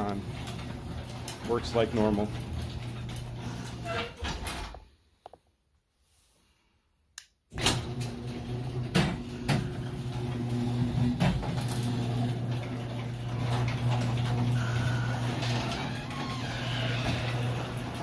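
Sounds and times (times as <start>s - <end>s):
garage door motor humming: 0.0s - 4.7s, 7.6s - 18.0s.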